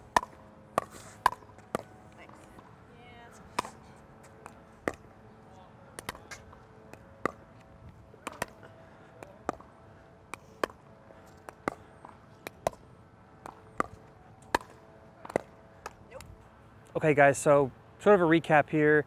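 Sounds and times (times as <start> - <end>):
ball bouncing on hard court: 4.4 - 5.1, 6.0 - 7.4, 8.2 - 8.6, 13.4 - 16.0.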